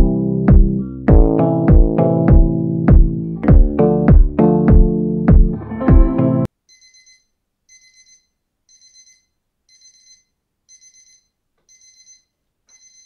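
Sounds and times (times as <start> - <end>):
alarm clock beeping: 6.7 - 13.0.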